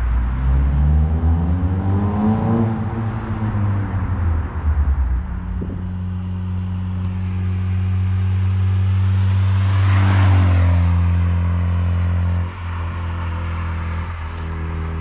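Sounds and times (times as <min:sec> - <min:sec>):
car exhaust drone passing: 0:00.0 - 0:15.0
tyre and wind noise: 0:04.5 - 0:06.2.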